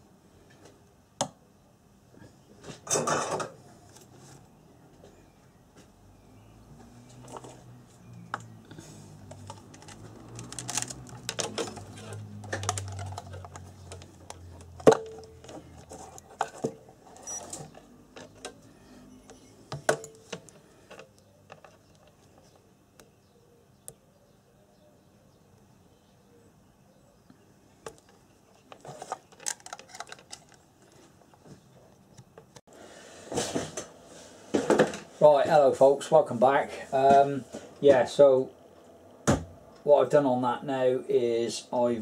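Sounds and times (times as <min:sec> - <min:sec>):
clicks of multimeter handling: 0:09.3 - 0:16.6, 0:28.7 - 0:30.6.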